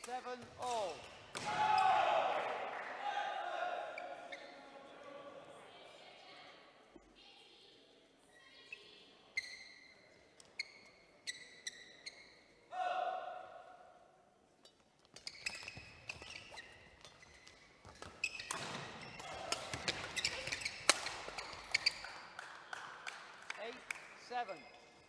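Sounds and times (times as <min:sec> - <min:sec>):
rackets hitting shuttlecock: 0:00.0 - 0:01.8, 0:14.7 - 0:22.2
shoes squeaking on floor: 0:04.0 - 0:04.7, 0:08.6 - 0:12.6, 0:14.6 - 0:22.3.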